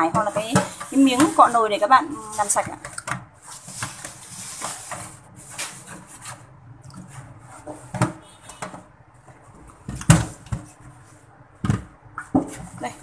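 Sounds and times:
gloved hand rubbing filter: 0:00.2 - 0:02.7.

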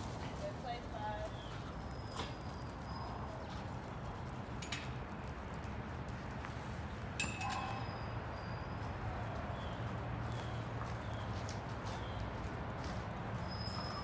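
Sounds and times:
sharp metallic clinks: 0:07.2 - 0:08.1.

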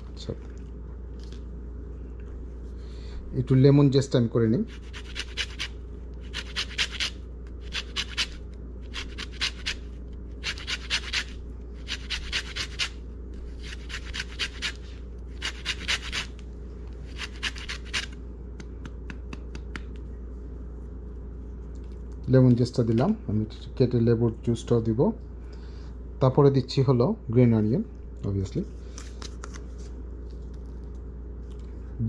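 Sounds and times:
lemon rind rasping on grater: 0:04.7 - 0:09.8, 0:10.4 - 0:13.0, 0:13.6 - 0:14.8, 0:15.4 - 0:16.3, 0:17.1 - 0:18.2.

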